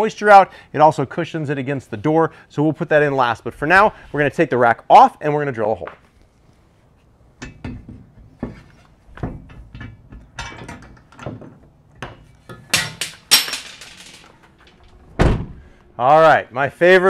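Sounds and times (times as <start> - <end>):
metal clicks and knocks: 7.4 - 8.5, 9.1 - 15.0.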